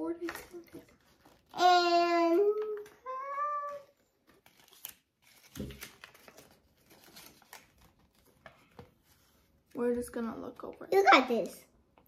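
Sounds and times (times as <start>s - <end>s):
plastic packaging crinkling: 0.5s - 8.7s.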